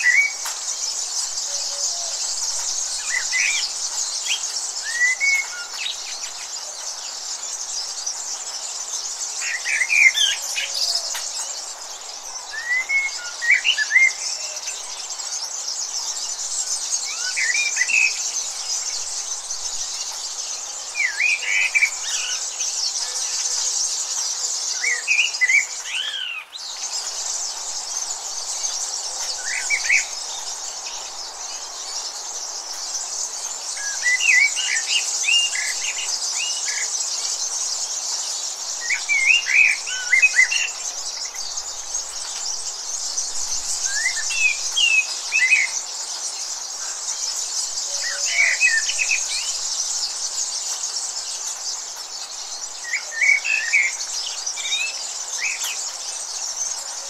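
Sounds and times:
birds chirping: 0:00.0 - 0:57.0
high-pitched insect chorus: 0:00.0 - 0:57.0.

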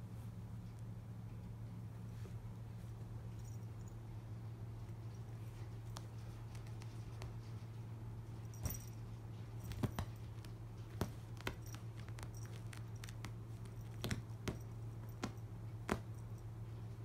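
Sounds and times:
steady low hum: 0:00.0 - 0:17.0
cat claws scratching rug: 0:04.7 - 0:17.0.

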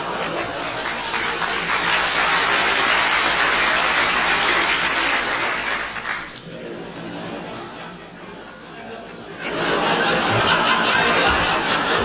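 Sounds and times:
audience applauding: 0:00.0 - 0:06.4
crowd murmur: 0:00.0 - 0:12.0.

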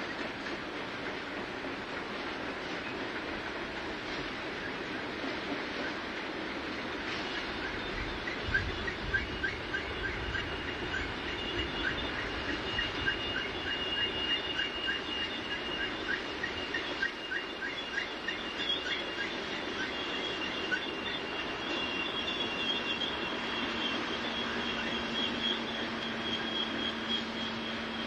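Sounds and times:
high-pitched wheel squeal: 0:07.3 - 0:28.0
short squeaks: 0:20.0 - 0:28.0.

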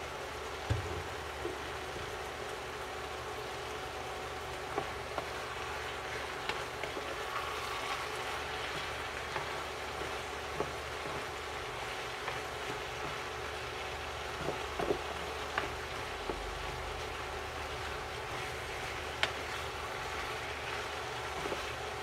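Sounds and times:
vegetables sizzling in a frying pan: 0:00.0 - 0:22.0
wooden spatula stirring: 0:04.5 - 0:22.0.

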